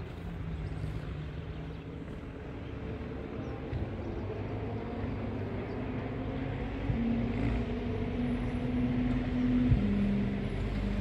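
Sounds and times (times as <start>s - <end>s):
truck diesel engine pulling uphill: 0.0s - 11.0s.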